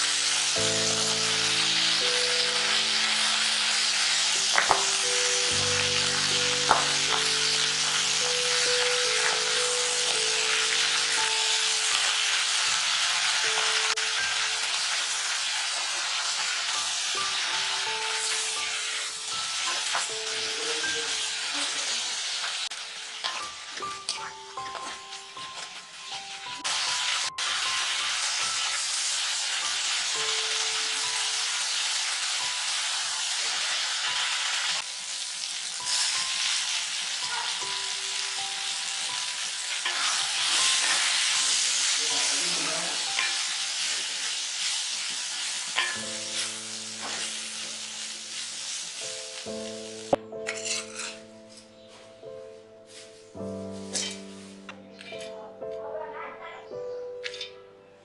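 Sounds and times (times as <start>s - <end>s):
food sizzling in oil: 0.0s - 51.6s, 52.9s - 55.3s.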